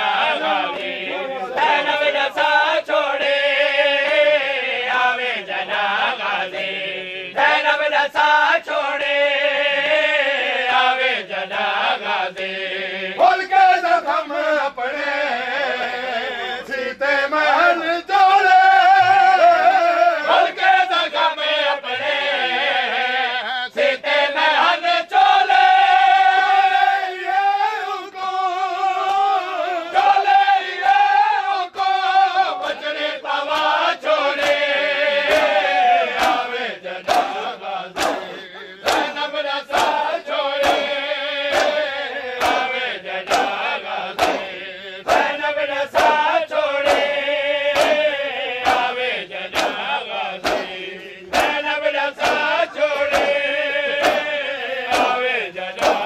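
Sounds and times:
men chanting together: 0.0 - 56.0
hands slapping bare chests: 33.4 - 56.0.

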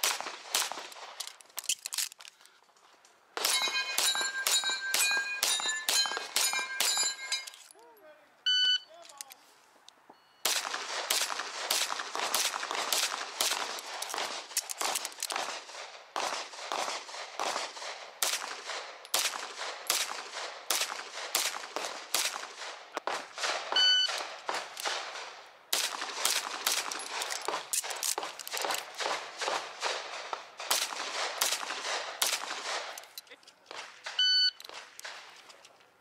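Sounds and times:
pistol shots: 0.0 - 1.3, 3.4 - 7.5, 10.4 - 33.1
short electronic beep: 8.5 - 8.9, 23.8 - 24.2, 34.2 - 34.6.

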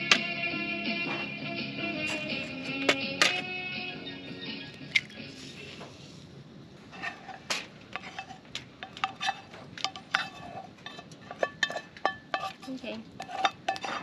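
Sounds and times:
utensil clinking in frying pan: 8.0 - 14.0.

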